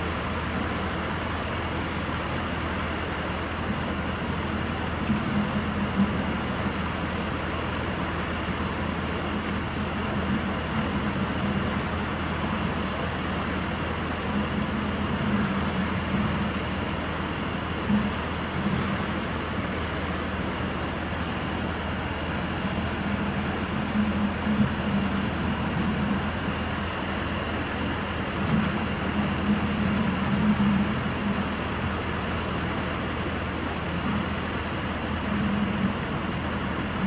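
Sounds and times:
excavator diesel engine running: 0:00.0 - 0:37.0.

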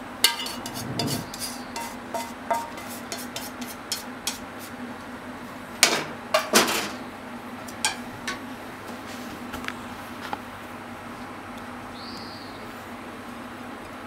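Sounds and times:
steady low hum: 0:00.0 - 0:06.3
cookware clattering: 0:00.2 - 0:04.4, 0:07.7 - 0:08.4
frying pan and spatula tapping bowl: 0:00.2 - 0:04.5, 0:07.7 - 0:08.4.

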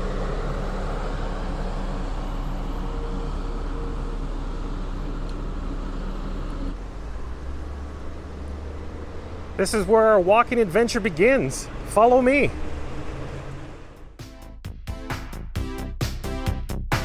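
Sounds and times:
low background drone: 0:00.0 - 0:06.8
bus engine running: 0:00.0 - 0:14.4.

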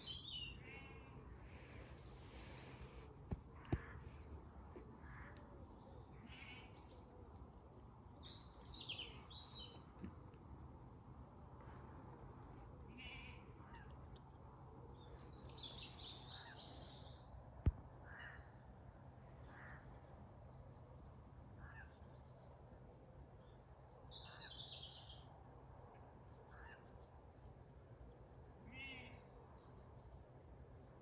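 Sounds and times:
birds chirping: 0:00.0 - 0:10.3.

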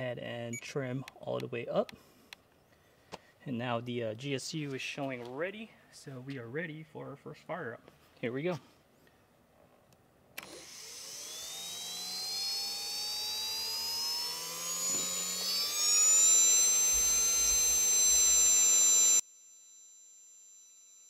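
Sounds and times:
jet turbine whine: 0:10.4 - 0:19.2.

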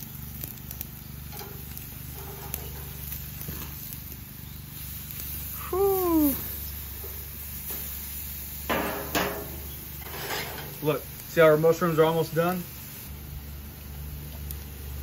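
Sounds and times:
gas grill burners humming: 0:00.0 - 0:15.0
tongs clicking on grill grates: 0:00.4 - 0:03.9, 0:08.7 - 0:10.8.

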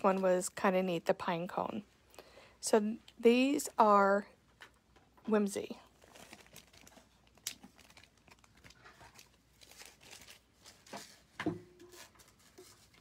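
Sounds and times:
plastic packaging crinkling: 0:05.8 - 0:13.0.

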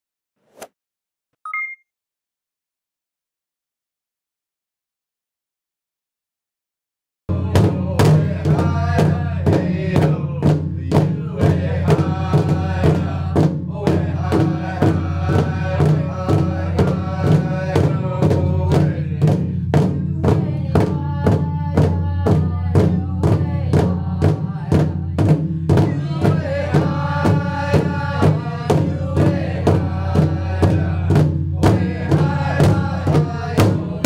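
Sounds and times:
person chanting: 0:07.3 - 0:19.5, 0:20.1 - 0:34.0
drum beating: 0:07.3 - 0:34.0.

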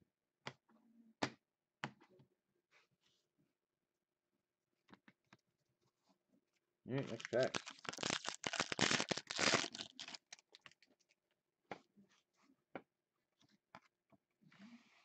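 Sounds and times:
foil pack tearing and crinkling: 0:07.1 - 0:10.6
cards clicking and rustling: 0:07.1 - 0:10.8.

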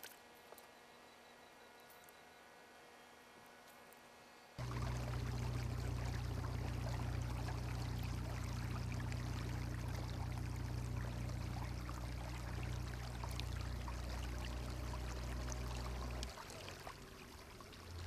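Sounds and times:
water splashing along kayak hull: 0:04.6 - 0:18.0.

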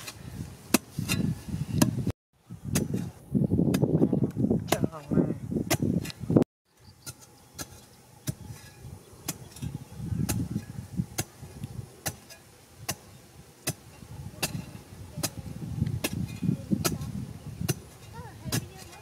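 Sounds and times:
soil scraping and thudding: 0:00.0 - 0:19.0
metal pipe striking hard earth: 0:12.0 - 0:15.4.

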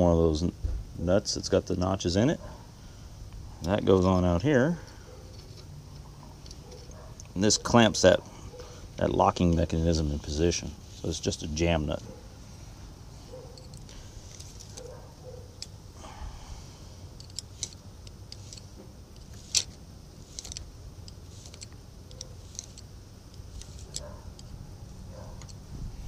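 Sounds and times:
low steady rumble: 0:00.0 - 0:26.0
hand tool clicking on metal: 0:17.2 - 0:24.6.

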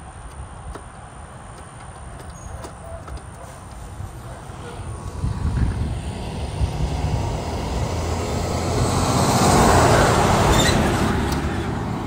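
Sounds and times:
vehicle passing: 0:03.5 - 0:12.0.

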